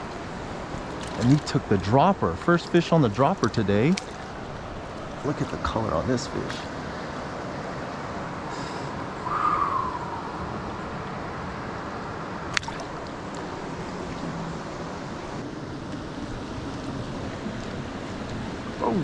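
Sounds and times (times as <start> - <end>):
stream running over rocks: 0.0 - 8.3, 12.1 - 15.2.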